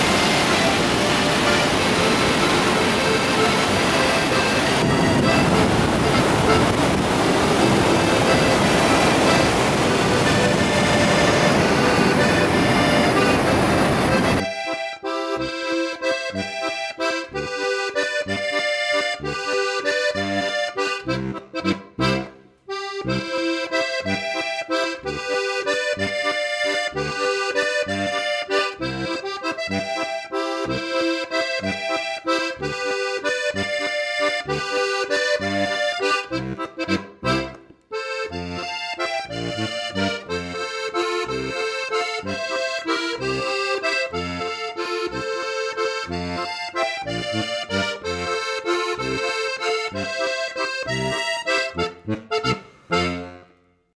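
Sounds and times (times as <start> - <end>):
accordion folk music: 0.0 - 53.9.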